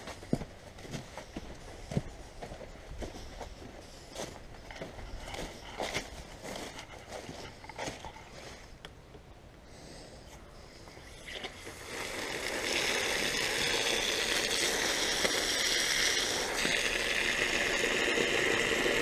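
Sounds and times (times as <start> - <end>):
water rushing from a hose: 11.0 - 19.0.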